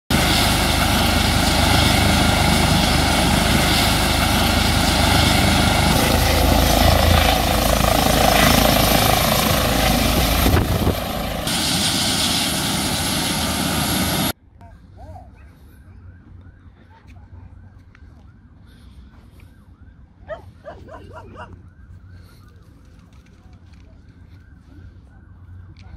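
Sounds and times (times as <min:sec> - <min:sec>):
helicopter turbine and rotor: 0:00.1 - 0:14.4.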